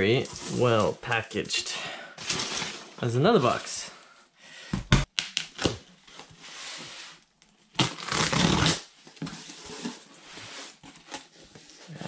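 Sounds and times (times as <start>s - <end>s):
knife slitting packing tape: 7.8s - 8.9s.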